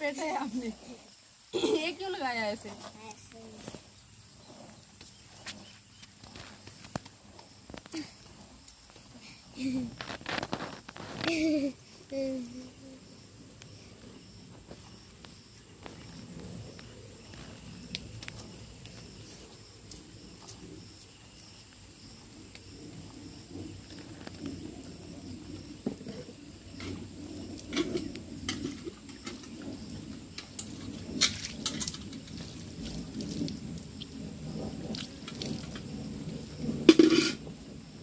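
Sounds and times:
metal pail clinks: 36.9 - 37.4.

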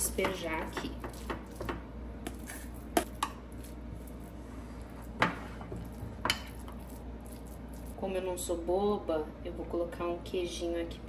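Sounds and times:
cutlery scraping a bowl: 5.1 - 6.9.

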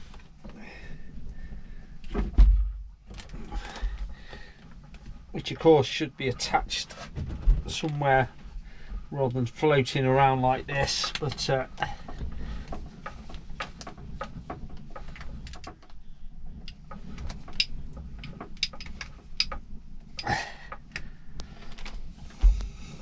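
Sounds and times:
dull thump: 2.1 - 3.1.

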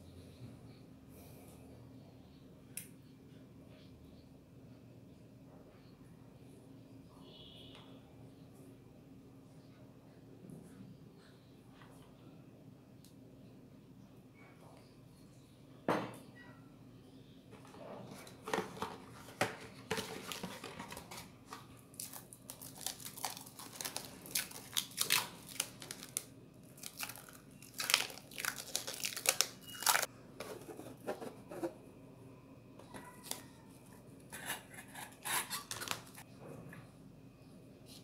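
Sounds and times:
cling film crinkling and ripping: 19.9 - 30.1.

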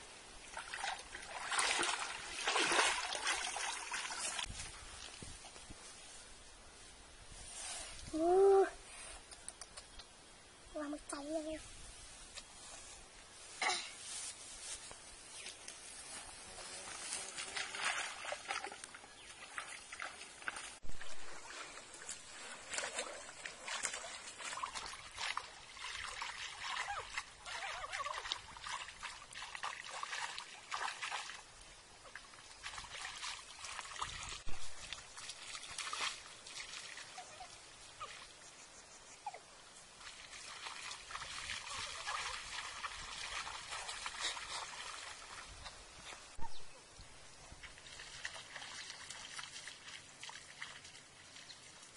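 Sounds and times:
water splashing and sloshing: 0.0 - 6.2, 15.3 - 38.6, 39.7 - 46.6, 47.4 - 51.9.

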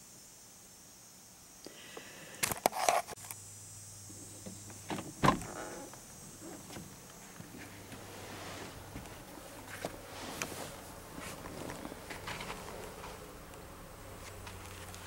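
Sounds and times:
steady low hum: 3.1 - 15.0.

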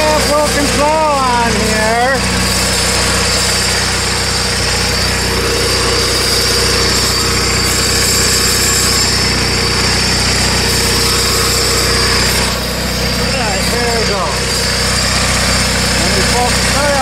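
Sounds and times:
garden tractor engine running: 0.0 - 17.0.

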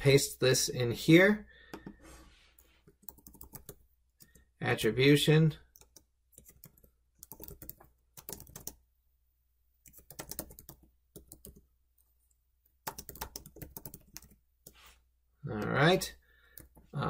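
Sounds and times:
computer keyboard typing: 2.9 - 4.4, 5.7 - 8.8, 9.8 - 11.7, 12.8 - 14.8.

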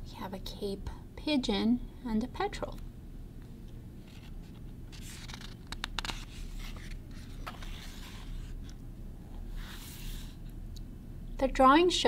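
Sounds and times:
paper page rustling: 4.0 - 8.8, 9.6 - 10.4
light page clicks: 4.1 - 8.1.

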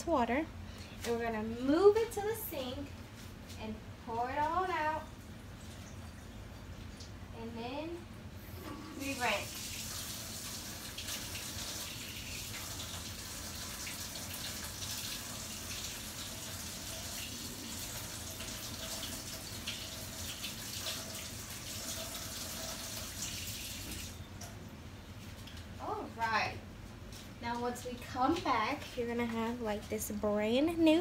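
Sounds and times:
tap water running into sink: 9.0 - 24.6.

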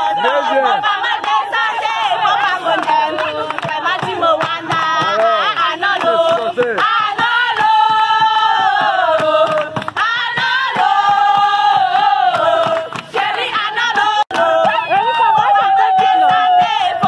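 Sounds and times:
women singing together: 0.0 - 17.0.

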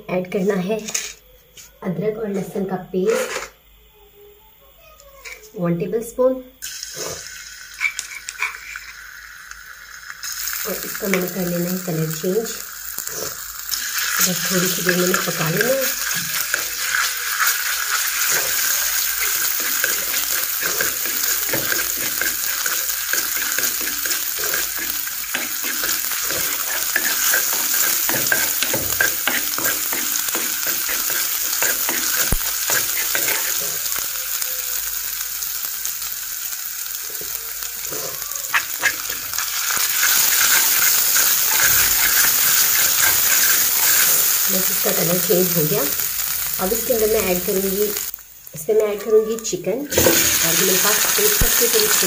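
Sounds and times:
paste sizzling in hot oil: 6.6 - 52.0
spatula scraping frying pan: 13.0 - 34.0, 37.1 - 45.4, 49.9 - 52.0.

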